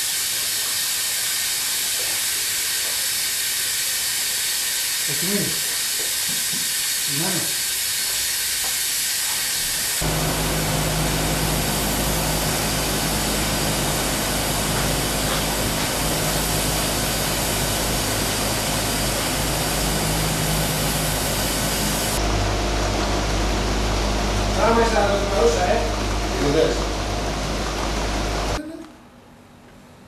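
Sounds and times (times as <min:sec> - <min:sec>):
steam hissing: 0:00.0 - 0:22.2
low steady hum: 0:10.0 - 0:29.1.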